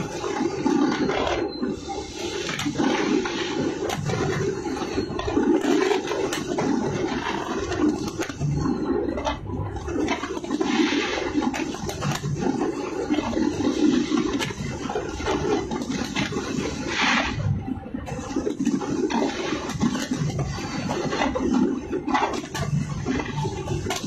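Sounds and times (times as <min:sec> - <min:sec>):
rumble of bursting fireworks: 0:00.0 - 0:17.5.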